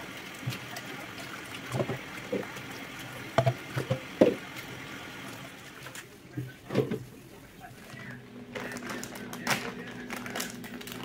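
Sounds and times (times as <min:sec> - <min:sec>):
tap running into metal sink: 0:03.3 - 0:04.4
dishes clattering: 0:03.4 - 0:04.4.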